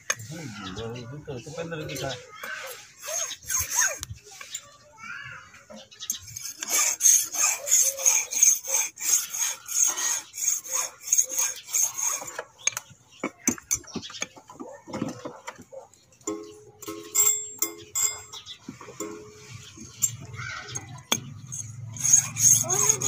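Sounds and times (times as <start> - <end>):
hand file scraping on brass: 2.6 - 4.6, 6.1 - 12.5, 21.1 - 23.0.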